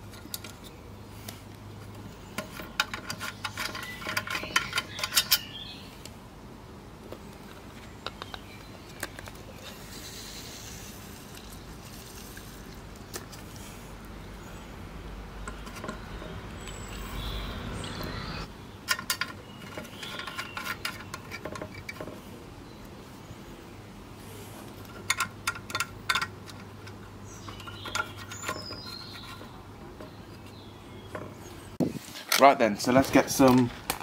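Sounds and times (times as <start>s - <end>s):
small metallic clicks and taps: 7.1s - 9.4s, 24.7s - 30.5s.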